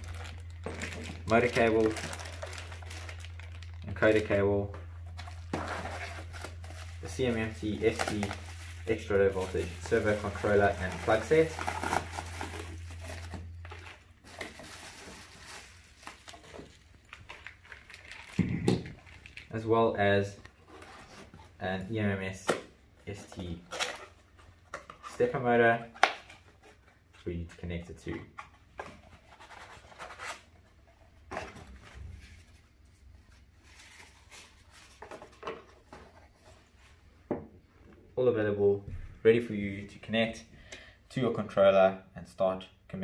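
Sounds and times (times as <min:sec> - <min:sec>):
cardboard packaging handled: 0:00.0 - 0:19.6, 0:28.3 - 0:36.9
bubble wrap crinkling: 0:00.0 - 0:19.7.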